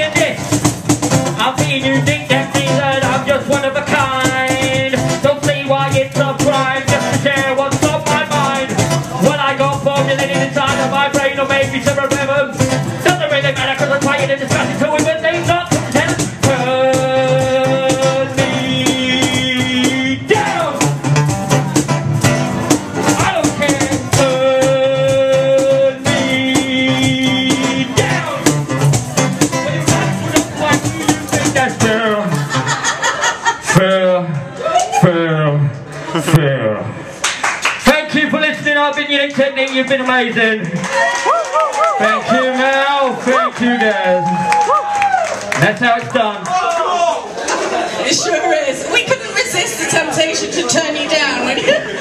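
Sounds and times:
guitar accompaniment: 0:00.0 - 0:52.0
vocal beatbox into microphone: 0:01.2 - 0:21.0, 0:23.1 - 0:28.9.

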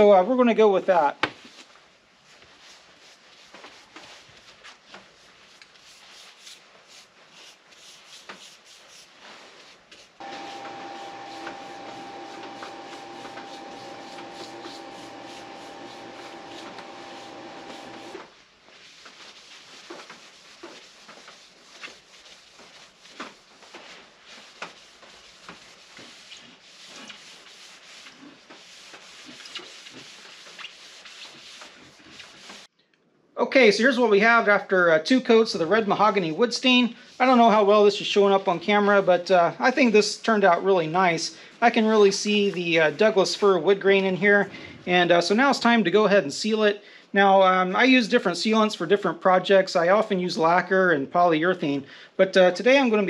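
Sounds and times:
cloth rubbing wood: 0:02.3 - 0:32.7
steady hum: 0:10.2 - 0:18.3.

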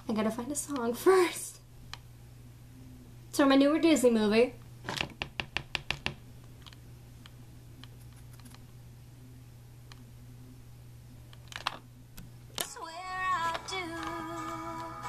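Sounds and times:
steady low hum: 0:00.0 - 0:04.9, 0:06.1 - 0:15.0.

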